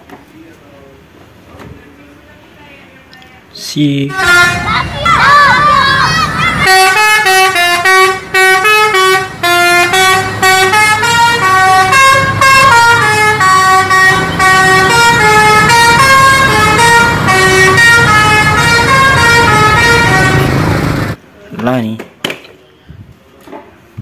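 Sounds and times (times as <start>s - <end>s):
musical bus horn tune: 4.1s - 5.8s, 6.4s - 20.7s.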